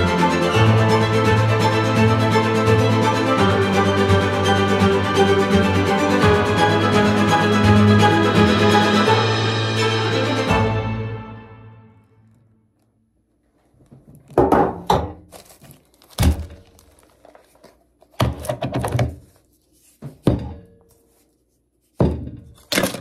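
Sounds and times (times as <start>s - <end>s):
objects thunking on wooden table: 14.0s - 15.2s.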